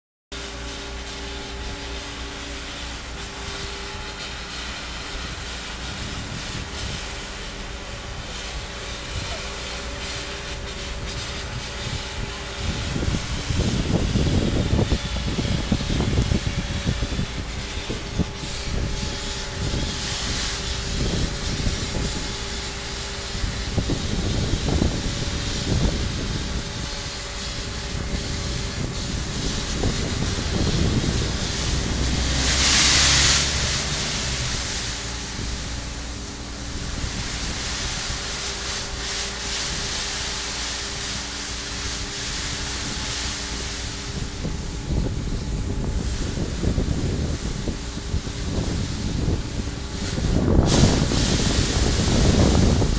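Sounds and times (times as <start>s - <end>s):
sandblasting jet hissing: 0.3s - 52.9s
steady machine hum: 0.3s - 52.9s.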